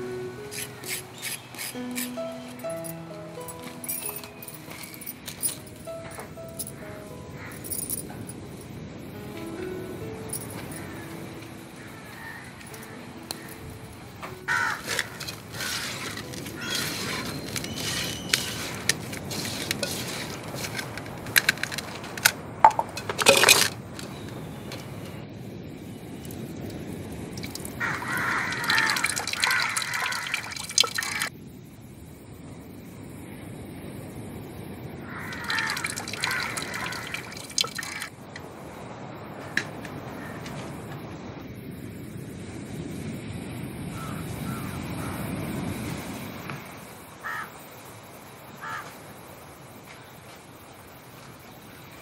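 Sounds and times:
hand rubbing grated coconut: 0:00.5 - 0:02.2, 0:14.8 - 0:21.2
clay pots clinking and knocking: 0:22.6 - 0:24.1, 0:27.4 - 0:31.2, 0:35.3 - 0:38.1.

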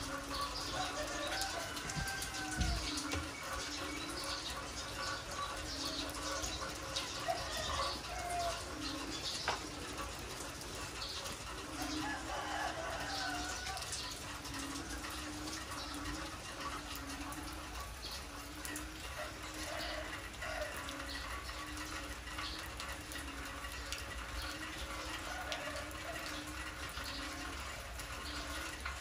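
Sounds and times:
heavy rain falling: 0:00.0 - 0:29.0.

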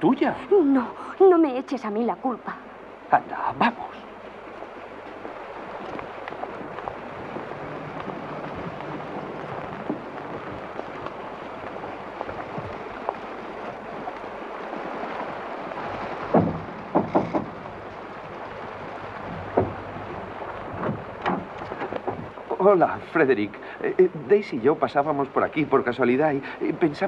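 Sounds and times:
heavy rain falling: 0:00.0 - 0:27.0
sharp knocks: 0:16.2 - 0:17.7, 0:19.3 - 0:20.1, 0:20.7 - 0:22.3.

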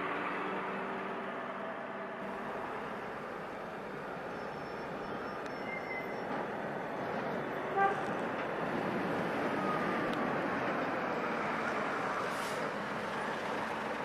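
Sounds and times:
tram running on rails: 0:00.0 - 0:14.0
tram horn toot: 0:07.6 - 0:08.3.

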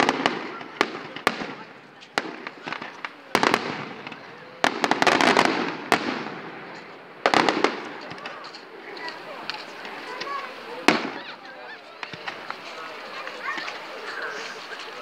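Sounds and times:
firework crackling: 0:00.0 - 0:15.0.

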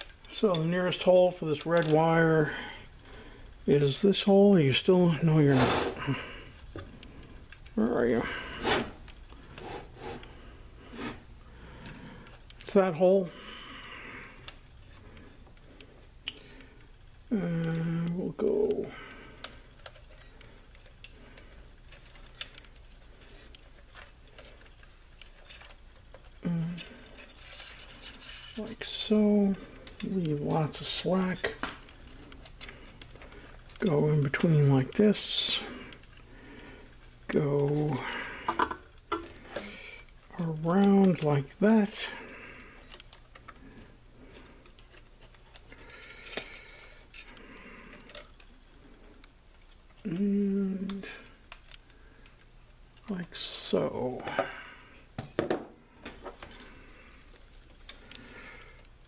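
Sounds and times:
low steady hum: 0:00.0 - 0:59.0.

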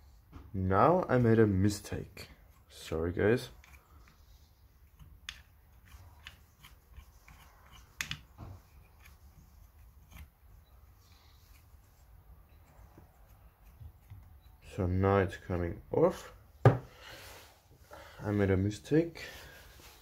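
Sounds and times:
tools clicking and tapping: 0:03.5 - 0:04.2, 0:04.8 - 0:10.8, 0:12.5 - 0:14.6.

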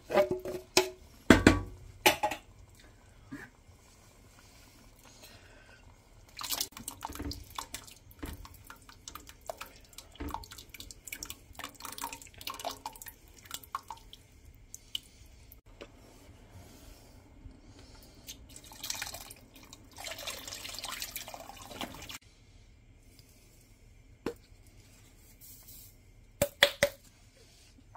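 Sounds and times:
broth pouring into a pot: 0:01.1 - 0:15.6, 0:18.2 - 0:22.2.

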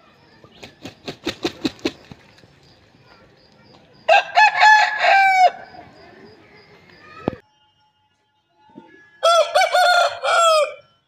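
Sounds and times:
rooster wings beating: 0:00.6 - 0:02.3
rooster crowing: 0:04.1 - 0:05.8, 0:09.2 - 0:10.9.

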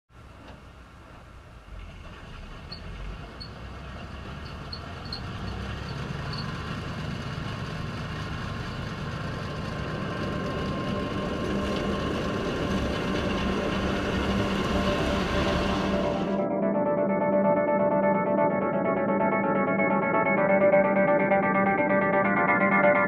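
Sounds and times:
combine harvester rumbling: 0:00.2 - 0:16.5.

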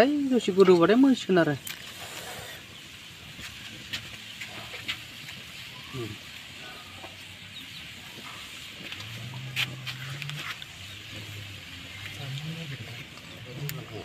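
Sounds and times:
faint voices: 0:04.2 - 0:14.0.

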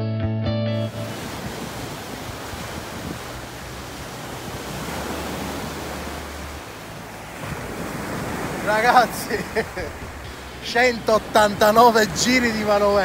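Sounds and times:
waves washing onto beach: 0:00.9 - 0:13.0
wind rumbling on microphone: 0:01.0 - 0:13.0.

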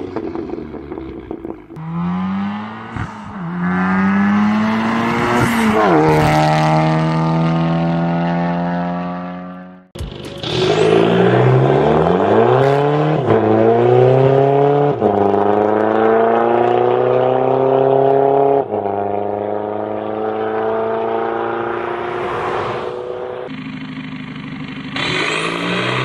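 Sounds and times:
diesel car accelerating: 0:00.0 - 0:26.0
car passing by: 0:20.8 - 0:23.5.

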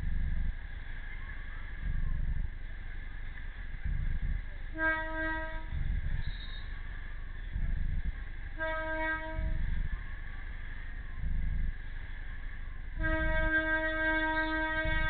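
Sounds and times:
train rumble: 0:00.0 - 0:15.0
train horn blasts: 0:04.7 - 0:06.7, 0:08.5 - 0:09.6, 0:13.0 - 0:15.0.

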